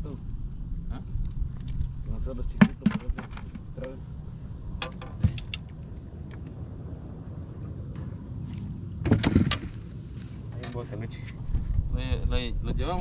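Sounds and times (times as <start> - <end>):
fishing gear clicking and knocking: 2.6 - 4.0, 4.8 - 6.6.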